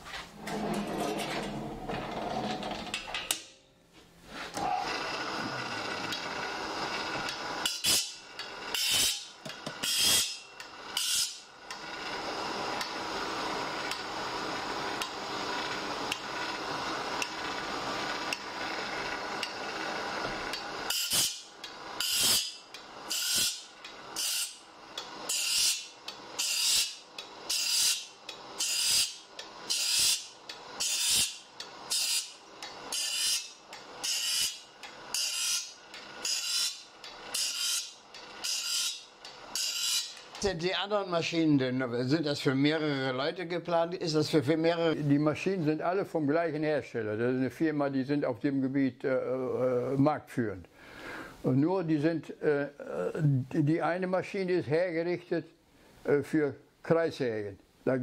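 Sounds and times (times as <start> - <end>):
grinding wheel grinding saw teeth: 0.4 - 3.5, 4.5 - 40.5
saw-sharpening machine motor hum: 4.4 - 40.5.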